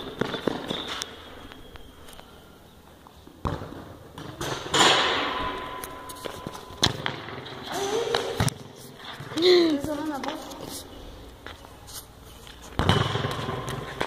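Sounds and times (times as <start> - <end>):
football kicked on concrete: 12.7 - 14.0.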